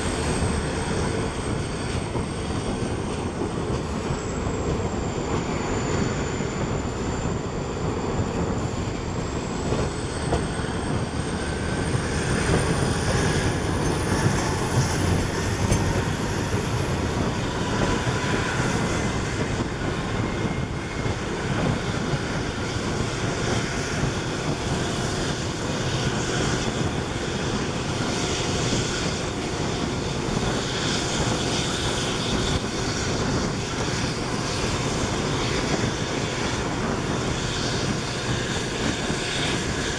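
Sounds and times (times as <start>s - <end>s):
diesel locomotive engine running: 0.0s - 39.9s
wheel and rail noise: 0.0s - 39.9s.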